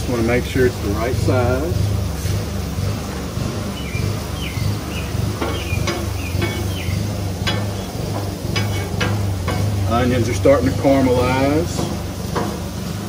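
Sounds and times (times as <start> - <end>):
onions sizzling on a griddle: 5.0 - 13.0
metal spatula scraping griddle: 7.4 - 9.8.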